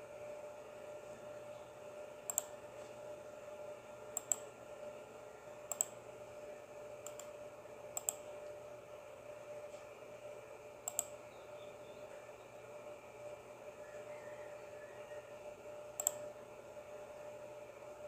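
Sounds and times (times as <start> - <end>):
faint steady hum: 0.0 - 18.0
computer mouse double clicks: 10.8 - 11.1.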